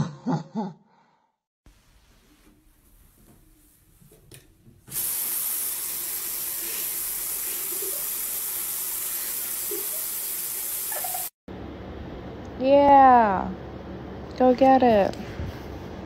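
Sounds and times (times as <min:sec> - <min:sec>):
faucet turned on: 0:04.9 - 0:11.3
tap water running into basin: 0:04.9 - 0:11.3.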